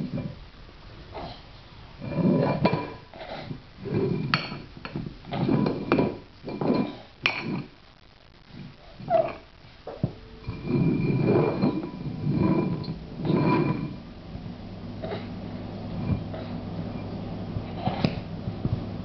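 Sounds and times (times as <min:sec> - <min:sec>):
metal bowls clanking on floor: 0:02.0 - 0:07.7, 0:09.1 - 0:14.0, 0:15.9 - 0:18.3.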